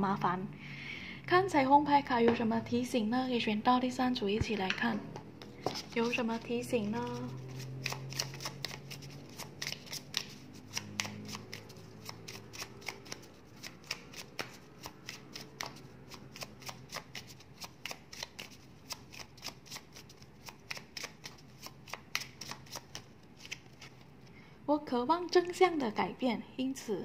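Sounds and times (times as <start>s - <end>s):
cards being shuffled: 5.2s - 24.1s.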